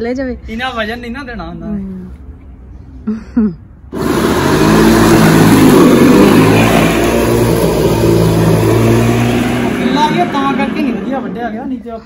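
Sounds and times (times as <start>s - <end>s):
electric lawn mower running: 3.9s - 11.9s.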